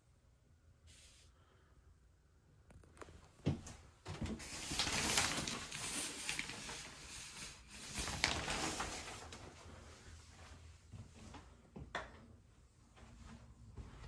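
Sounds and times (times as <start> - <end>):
shower curtain rustling: 3.4 - 10.6.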